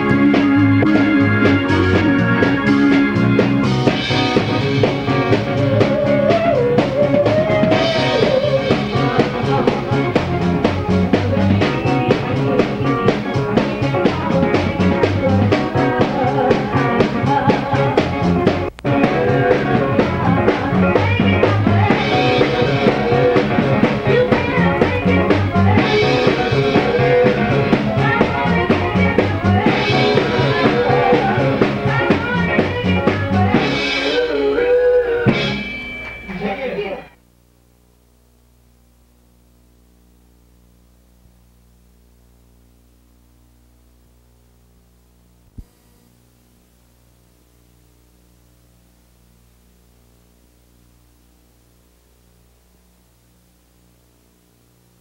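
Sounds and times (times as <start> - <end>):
rock band music: 0.0 - 37.2.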